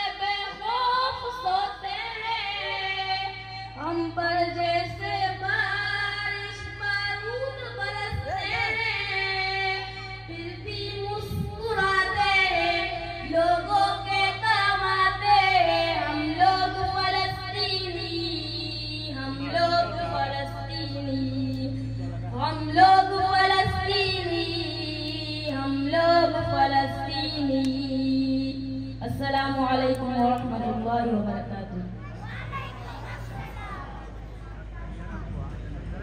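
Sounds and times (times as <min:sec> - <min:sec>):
boy singing through loudspeaker: 0:00.0 - 0:34.7
steady low hum: 0:00.0 - 0:36.0.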